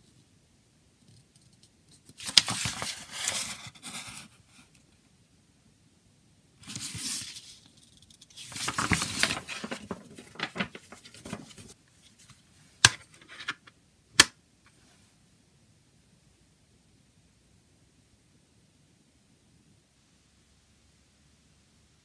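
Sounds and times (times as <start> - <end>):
paper rustling and crinkling: 1.9 - 4.7, 6.6 - 12.4.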